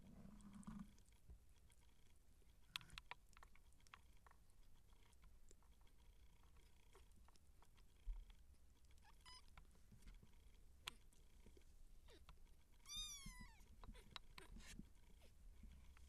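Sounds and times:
faint rustles: 0.0s - 16.0s
small clicks: 2.7s - 11.1s
kitten mewing: 12.8s - 14.7s.

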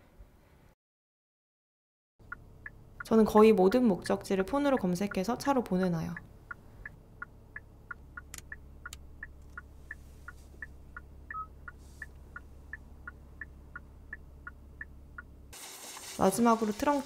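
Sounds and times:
low cabin hum: 2.2s - 15.5s
turn signal ticking: 2.2s - 15.5s
sharp clicks: 7.5s - 9.7s.

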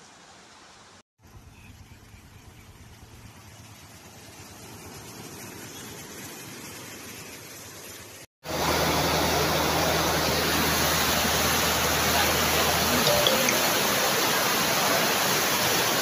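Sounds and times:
floodwater rushing: 3.6s - 16.0s.

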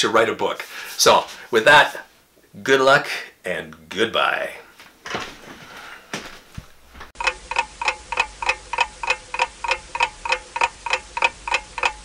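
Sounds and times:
clock ticking: 7.2s - 12.0s.

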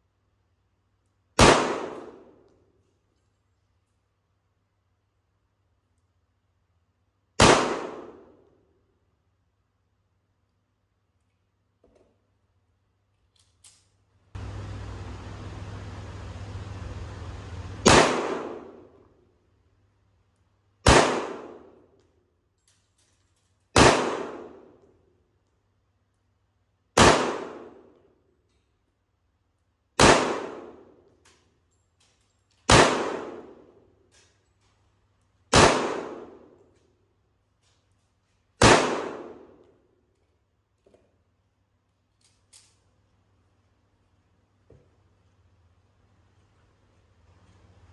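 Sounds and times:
pistol shots echoing: 1.4s - 2.4s, 7.4s - 8.4s, 17.8s - 18.9s, 20.8s - 21.8s, 23.7s - 24.8s, 27.0s - 27.9s, 30.0s - 30.9s, 32.7s - 33.7s, 35.5s - 36.6s, 38.6s - 39.6s.

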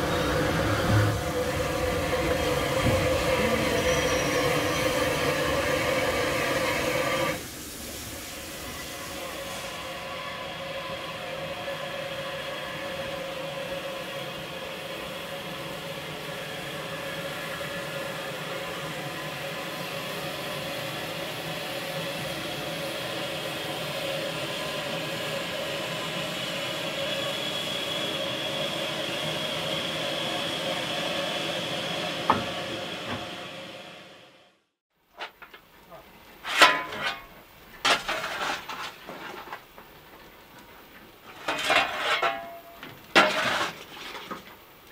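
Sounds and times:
steam locomotive hissing: 0.0s - 34.4s.

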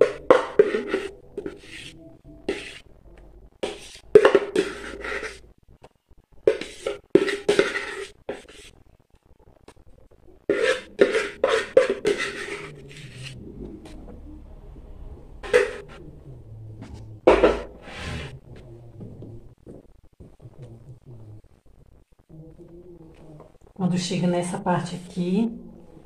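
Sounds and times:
scraping a plastic bowl: 0.0s - 2.9s, 3.6s - 5.4s, 6.5s - 8.8s, 10.5s - 14.0s, 15.4s - 16.0s, 16.9s - 18.4s.

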